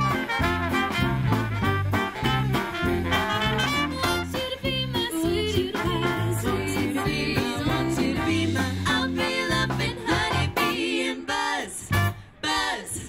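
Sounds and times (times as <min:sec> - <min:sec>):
swing band playing: 0:00.0 - 0:11.1, 0:11.8 - 0:12.3
women singing together: 0:04.6 - 0:13.0.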